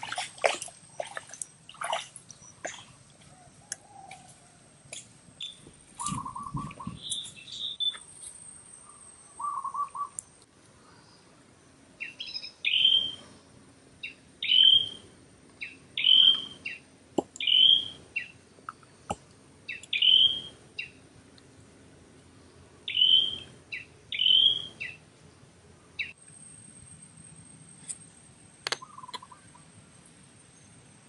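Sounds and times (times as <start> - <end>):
bird calling with falling whistle: 5.4 - 8.1, 8.9 - 10.2, 12.0 - 13.2, 14.0 - 15.0, 15.6 - 16.8, 17.4 - 18.3, 19.7 - 20.9, 22.9 - 25.0.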